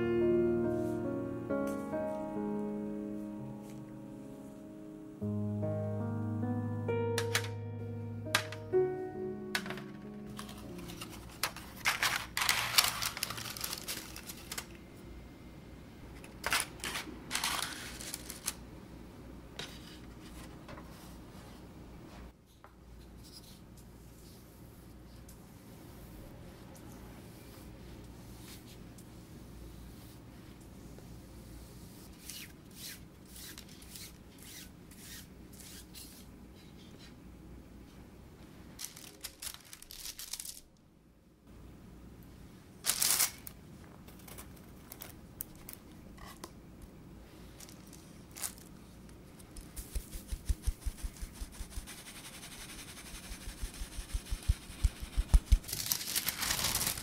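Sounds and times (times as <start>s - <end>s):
paper liners rustling: 10.3s - 14.8s, 16.2s - 18.6s, 38.8s - 40.7s, 49.4s - 57.0s.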